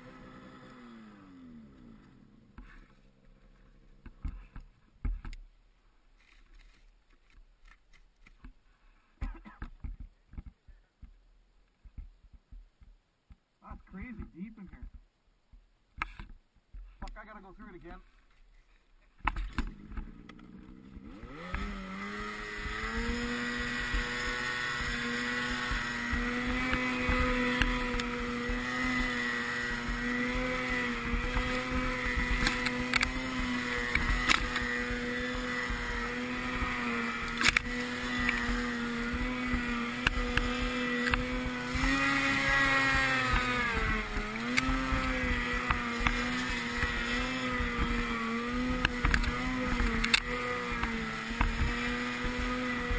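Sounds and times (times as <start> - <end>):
snowmobile engine revving: 0.0 - 4.6, 19.3 - 52.9.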